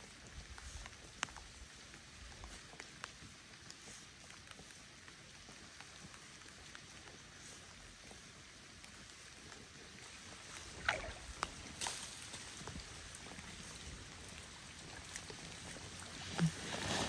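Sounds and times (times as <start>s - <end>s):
light ticks and drips: 0.0s - 17.0s
water lapping at a boat: 10.1s - 11.8s.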